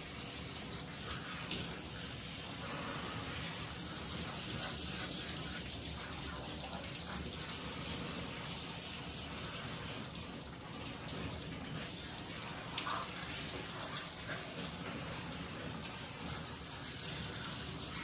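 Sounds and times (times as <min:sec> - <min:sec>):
water running into tub: 0:00.0 - 0:18.0.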